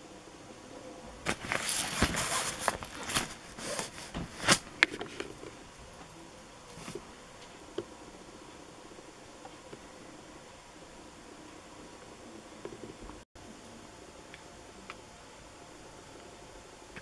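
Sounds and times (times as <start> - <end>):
plastic packaging crinkling: 1.2 - 5.5
handling noise: 1.2 - 7.9.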